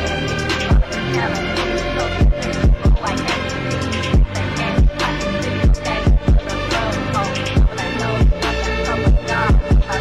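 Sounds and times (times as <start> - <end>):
sustained synth chords: 0.0 - 10.0
deep kick drums dropping in pitch: 0.7 - 1.0, 2.2 - 3.2, 4.1 - 6.6, 7.6 - 8.4, 9.1 - 10.0.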